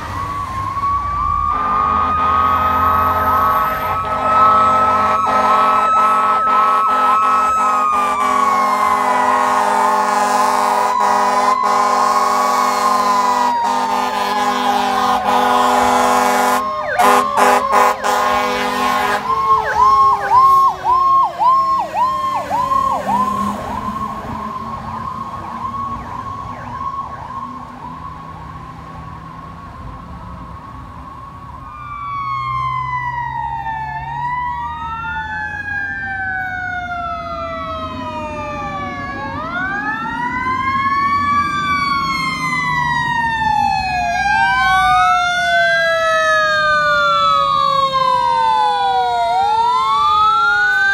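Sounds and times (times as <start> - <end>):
yelping electronic siren: 0.0 - 29.0, 30.4 - 50.9
sirens wailing: 0.0 - 50.9
fire truck horn blasts: 1.5 - 20.7.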